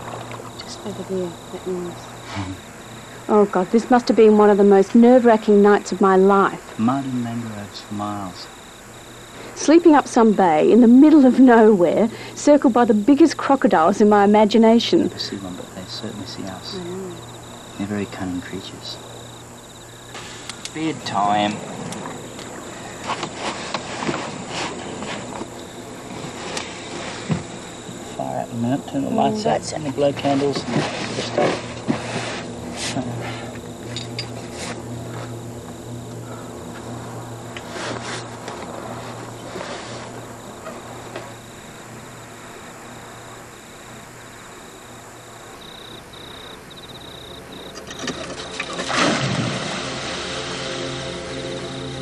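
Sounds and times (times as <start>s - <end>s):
night insects trilling: 0.0s - 52.0s
steady low hum: 0.0s - 52.0s.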